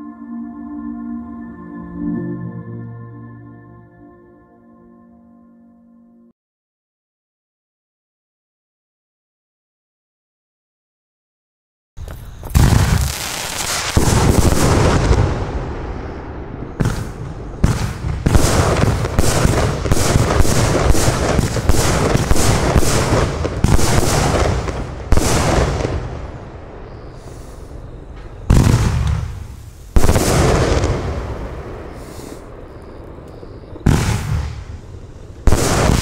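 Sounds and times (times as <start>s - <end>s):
sharp bangs: 27.2s - 32.6s, 33.8s - 36.0s
firework launch thumps: 28.3s - 31.0s.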